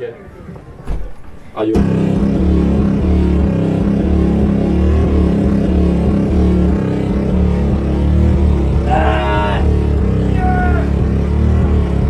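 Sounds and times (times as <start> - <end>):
live music with bass drone: 1.6 - 12.0.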